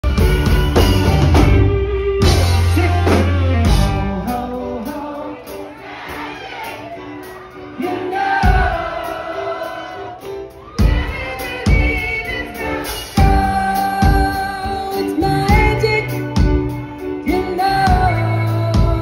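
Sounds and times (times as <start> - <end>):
heavy drums: 0.0 - 19.0
live rock band: 0.0 - 19.0
person singing: 1.7 - 19.0.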